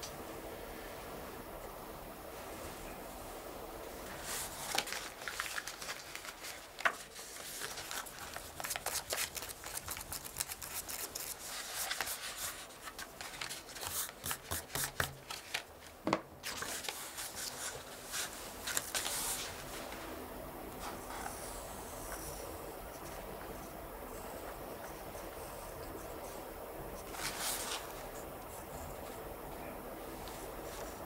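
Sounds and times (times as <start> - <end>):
paper rustling: 4.0 - 21.4, 27.0 - 28.2.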